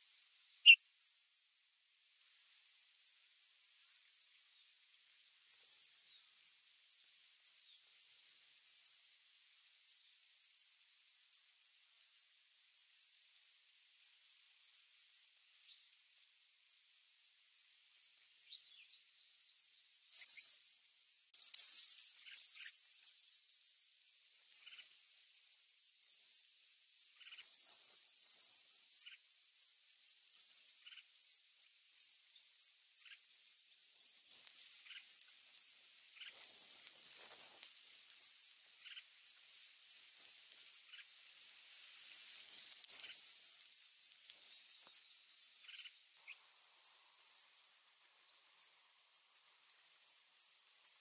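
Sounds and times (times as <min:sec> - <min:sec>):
steady hiss: 0:00.0 - 0:51.0
faint bird chirps: 0:00.5 - 0:00.9, 0:18.4 - 0:20.7, 0:22.2 - 0:23.4, 0:24.5 - 0:25.0, 0:27.0 - 0:29.3, 0:30.6 - 0:31.2, 0:32.2 - 0:33.4, 0:34.5 - 0:35.2, 0:36.0 - 0:36.5, 0:38.7 - 0:39.2, 0:40.3 - 0:41.2, 0:44.5 - 0:51.0
soft rustle: 0:21.3 - 0:32.1, 0:33.0 - 0:51.0
nestlings chirping: 0:34.2 - 0:48.6.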